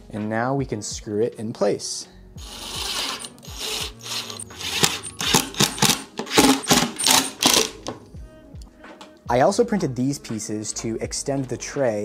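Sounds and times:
cordless driver driving screws: 2.4 - 8.0.

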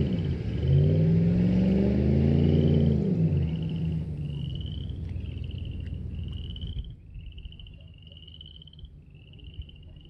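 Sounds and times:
frogs trilling: 3.4 - 10.0.

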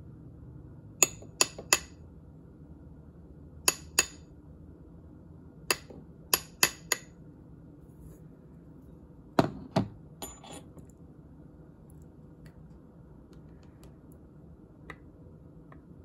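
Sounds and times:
hammer tapping metal punch: 1.0 - 1.9, 3.7 - 4.2, 5.7 - 7.1.

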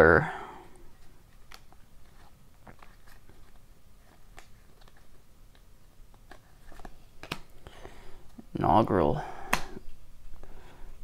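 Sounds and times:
cards flipped by hand: 1.0 - 7.6.

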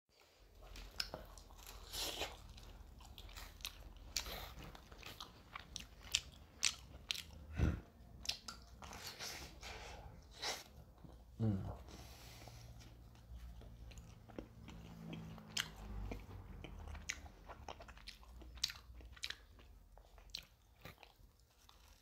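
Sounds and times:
person chewing pizza: 0.1 - 22.0
deeper mouth sound: 11.4 - 11.9.

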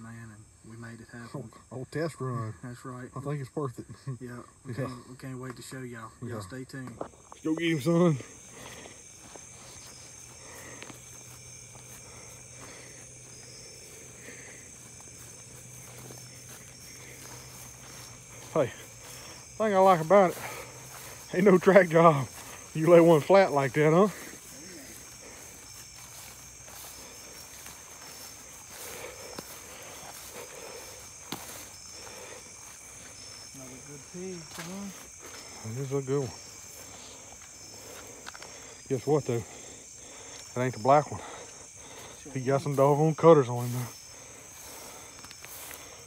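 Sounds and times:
crickets and insects trilling: 0.0 - 46.0
faint footfalls in grass: 6.9 - 38.7, 41.6 - 46.0.

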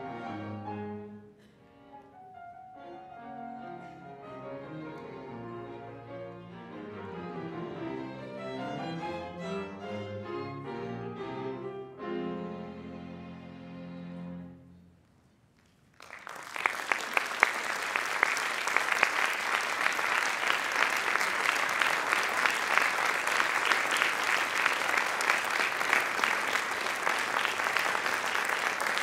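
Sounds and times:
audience applauding: 15.6 - 29.0.

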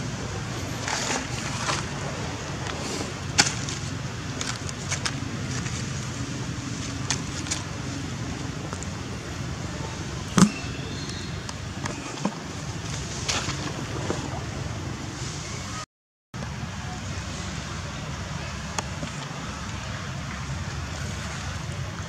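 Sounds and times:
dry leaves rustling: 0.0 - 14.2.

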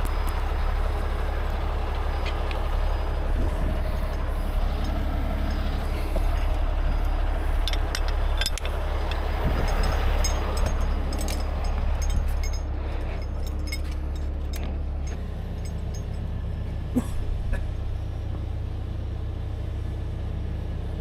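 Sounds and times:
diesel engine rumbling: 0.0 - 21.0
metal hook clinks: 7.6 - 16.3.

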